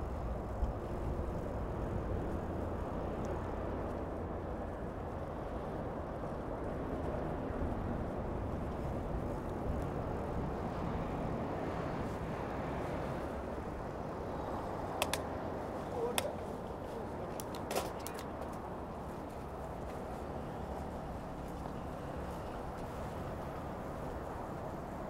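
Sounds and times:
city street traffic: 0.0s - 25.0s
sharp clicks and taps: 15.0s - 15.3s.

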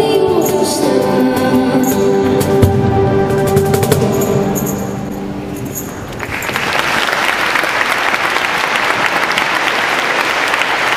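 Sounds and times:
tambourine jingles: 0.3s - 2.6s, 3.4s - 6.8s
audience applauding: 6.1s - 10.9s.

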